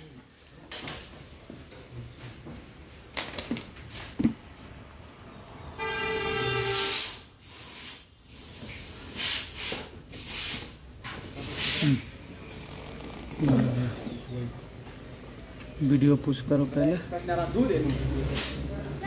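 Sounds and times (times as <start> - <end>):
horn sounding: 5.7 - 7.3
short bursts of hiss: 6.5 - 10.8, 11.4 - 12.1.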